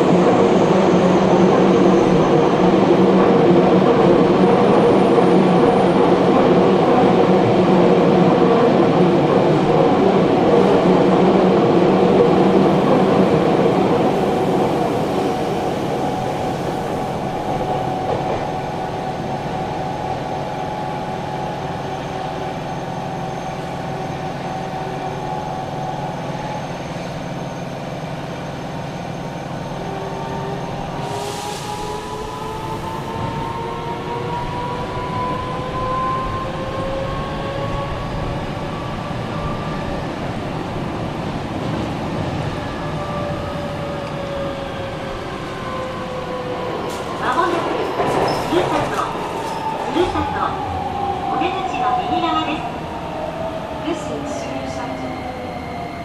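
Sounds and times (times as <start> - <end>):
train wheels on rail: 0.0 - 56.0.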